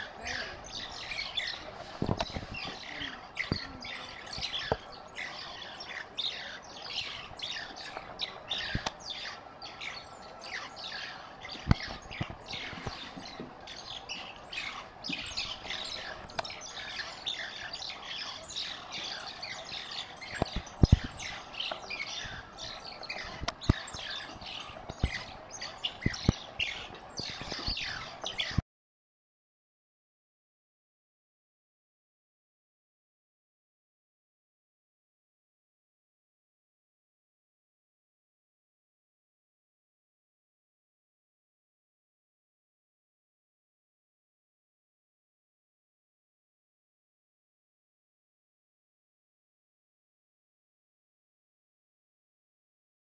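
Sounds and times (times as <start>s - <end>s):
mongooses chirping and twittering: 0.0s - 28.6s.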